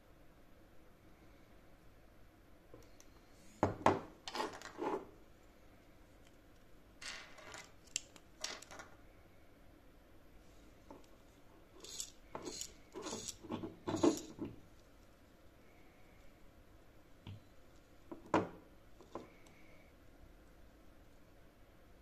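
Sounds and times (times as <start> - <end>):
small plastic parts clicking: 7.4 - 8.9, 11.8 - 13.4.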